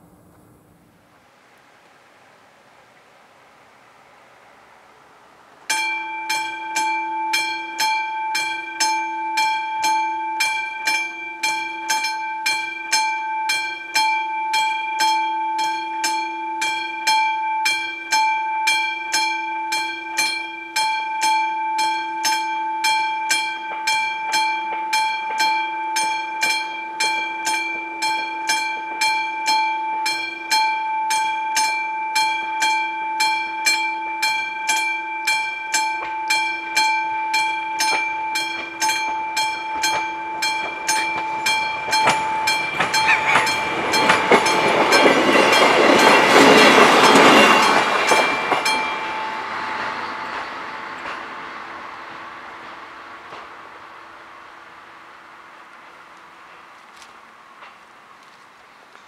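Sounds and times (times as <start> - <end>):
electric warning bell ringing: 5.7 - 52.3.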